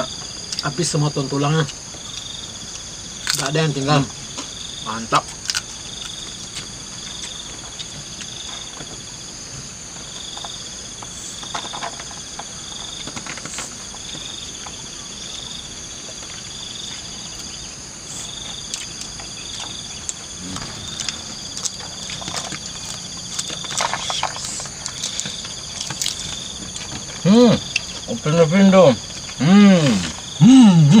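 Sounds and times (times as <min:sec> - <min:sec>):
insects trilling: 0:00.0 - 0:31.0
insect pulsing trill: 0:16.4 - 0:31.0.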